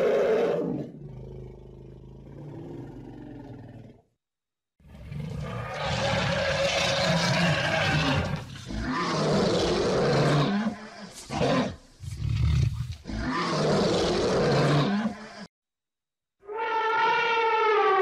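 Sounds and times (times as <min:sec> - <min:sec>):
lions roaring and snarling: 0:04.9 - 0:15.4.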